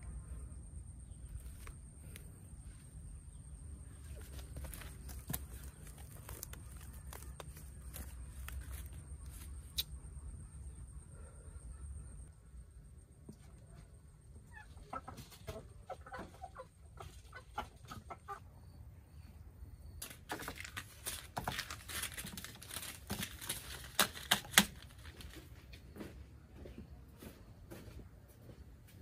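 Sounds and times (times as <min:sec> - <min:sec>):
rustling and clattering: 0:04.0 - 0:09.5
chickens clucking: 0:14.4 - 0:18.8.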